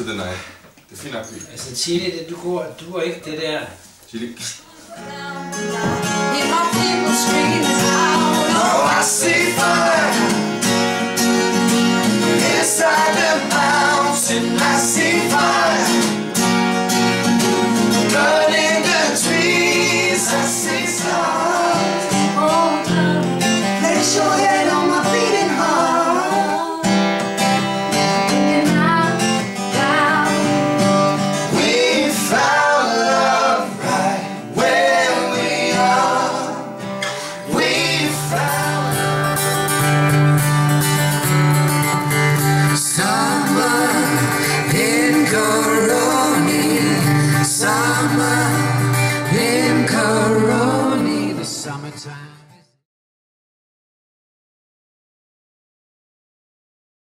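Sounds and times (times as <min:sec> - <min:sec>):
woman singing lead: 0:04.7 - 0:10.4, 0:18.1 - 0:27.2, 0:28.0 - 0:30.9, 0:37.4 - 0:39.8
acoustic guitars strummed: 0:04.7 - 0:52.7
men singing along: 0:05.8 - 0:10.7, 0:12.0 - 0:16.4, 0:17.5 - 0:26.9, 0:31.2 - 0:39.7, 0:42.6 - 0:51.8.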